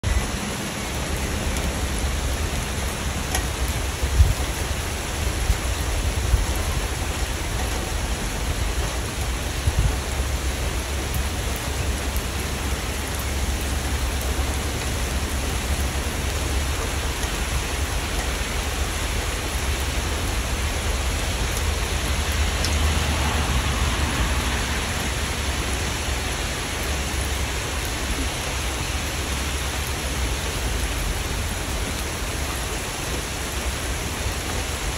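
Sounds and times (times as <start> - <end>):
sharp rain taps: 0.0 - 34.9
steady rain: 0.0 - 34.9.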